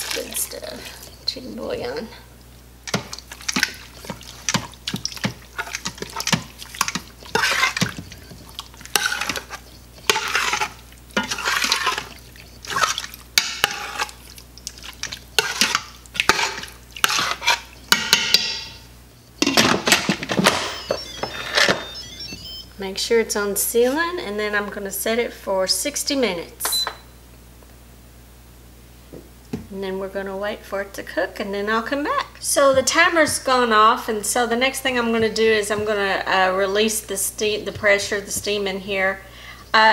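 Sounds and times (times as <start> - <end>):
metal spoon scraping a pot: 2.9 - 20.2.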